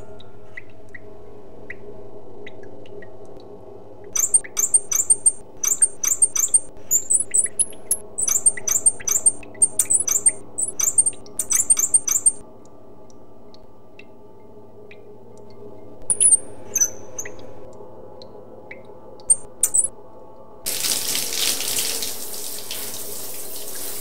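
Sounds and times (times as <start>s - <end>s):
high-pitched squeaky chirps: 4.2s - 12.4s, 16.1s - 17.4s, 19.3s - 19.9s.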